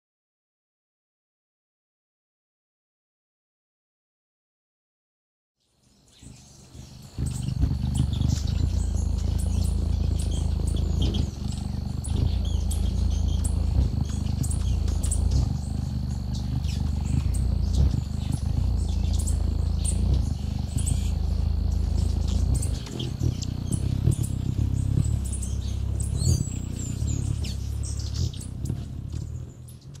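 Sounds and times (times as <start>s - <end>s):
hummingbird wings humming: 5.8s - 30.0s
hummingbird chips and twitters: 6.1s - 30.0s.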